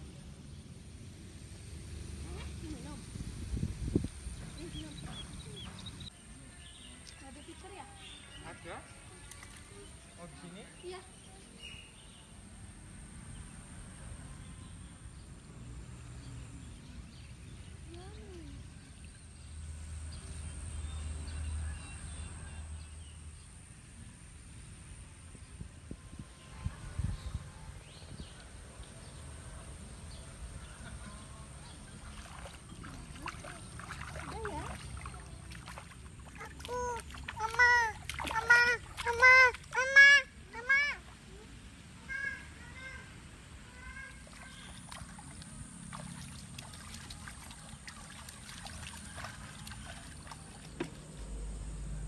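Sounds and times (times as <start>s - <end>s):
wind buffeting microphone: 2.7s - 6.0s
feet splashing in water: 31.8s - 40.1s, 44.2s - 51.2s
stream flowing over stones: 32.0s - 39.8s, 44.5s - 51.2s.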